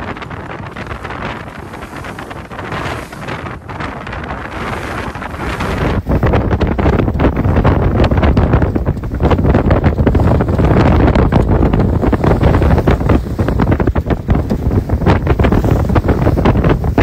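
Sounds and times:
water rushing along hull: 0:00.0 - 0:17.0
wind buffeting microphone: 0:00.0 - 0:17.0.

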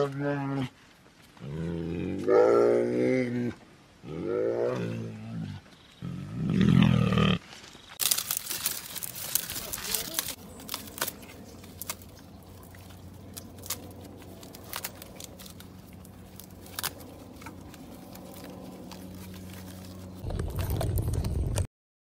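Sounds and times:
goats chewing grass: 0:07.5 - 0:21.5
steady low hum: 0:10.3 - 0:21.6.

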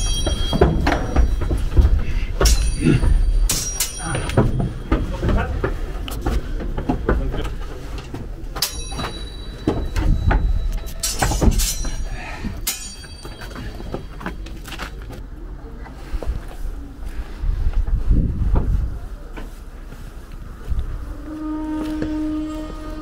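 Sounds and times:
footsteps on wooden stairs: 0:00.0 - 0:15.2
wood creaking: 0:00.0 - 0:15.4, 0:21.1 - 0:23.0.

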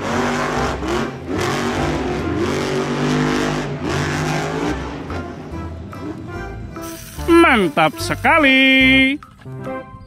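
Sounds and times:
monster truck engine revving: 0:00.0 - 0:06.8.

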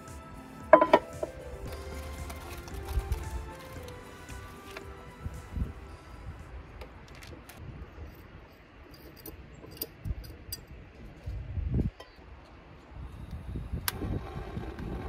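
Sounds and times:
metal clinks and handling knocks: 0:00.7 - 0:01.3
metal pot knock: 0:00.8 - 0:01.3.

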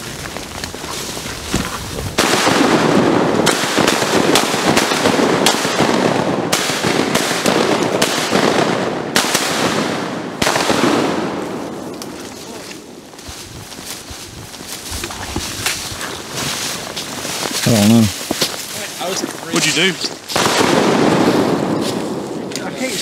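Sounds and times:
shotgun blasts: 0:02.2 - 0:11.6, 0:20.3 - 0:21.8.

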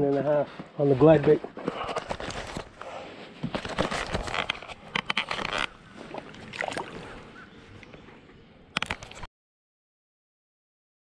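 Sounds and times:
knocks and rustles on kayak: 0:01.5 - 0:08.0
fish splashing at surface: 0:06.0 - 0:07.2.

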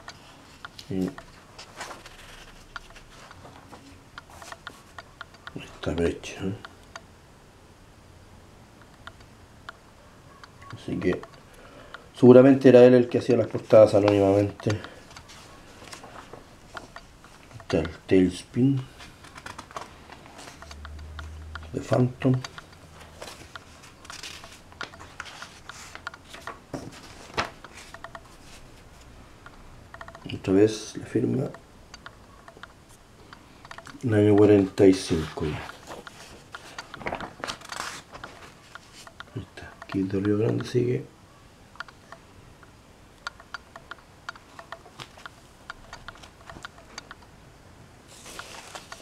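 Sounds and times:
paper pages rustling: 0:00.0 - 0:06.1, 0:12.7 - 0:29.1, 0:33.7 - 0:40.6, 0:48.1 - 0:49.0
paper crackles: 0:00.2 - 0:05.0, 0:18.8 - 0:20.8, 0:21.8 - 0:28.7, 0:34.2 - 0:39.1, 0:48.1 - 0:49.0.

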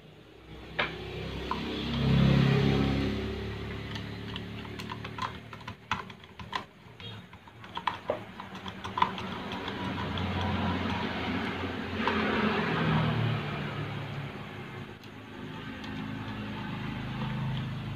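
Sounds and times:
electric fan motor humming: 0:00.0 - 0:17.9
small clicks and taps: 0:03.8 - 0:11.1.

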